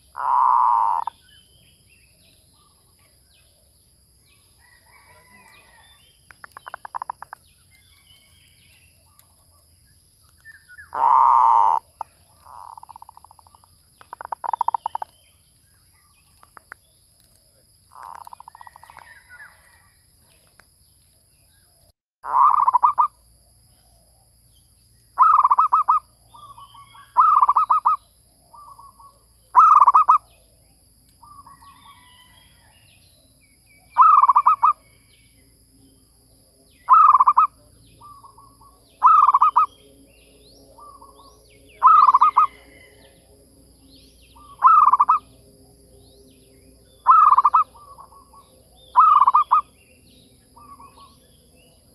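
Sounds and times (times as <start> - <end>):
dove cooing: 0.0 - 1.1, 10.9 - 13.3, 36.9 - 39.7, 40.8 - 42.9, 44.4 - 45.3, 47.0 - 49.7.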